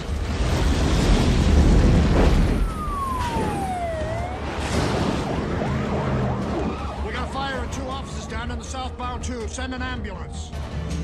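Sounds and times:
police car siren wailing: 2.5s - 10.6s.

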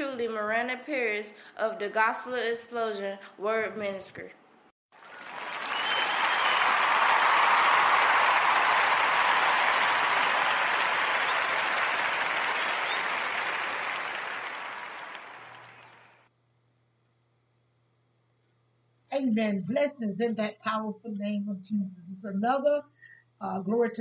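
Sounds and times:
crowd applauding: 4.9s - 16.3s.

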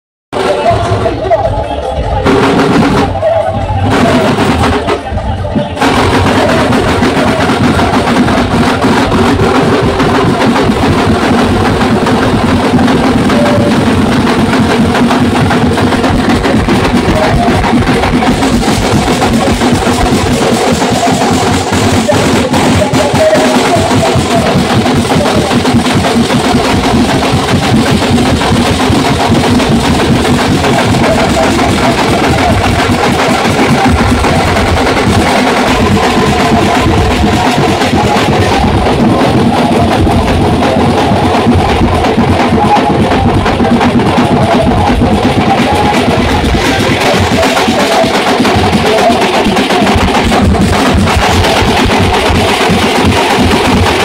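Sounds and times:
loud music with rapid drumming: 0.3s - 54.0s.

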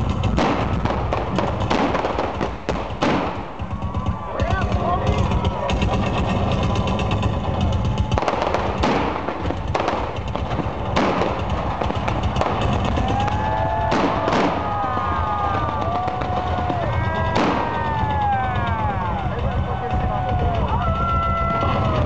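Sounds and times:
pyrotechnic bangs: 0.0s - 22.0s
low rumble through sound system: 3.5s - 22.0s.

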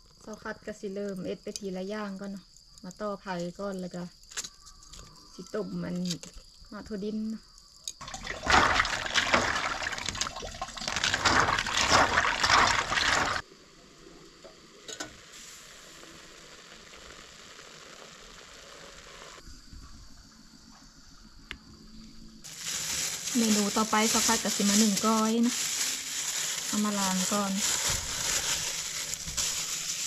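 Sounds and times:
peanuts rattling in water: 8.0s - 13.4s, 22.5s - 30.0s.

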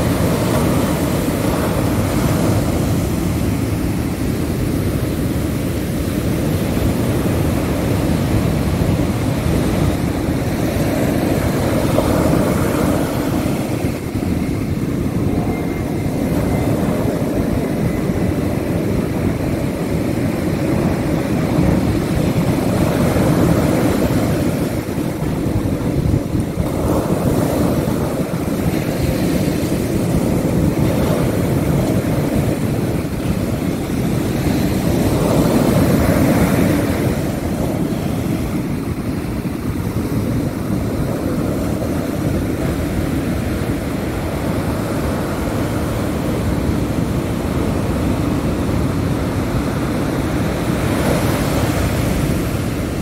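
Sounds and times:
ocean waves breaking on beach: 0.0s - 53.0s.

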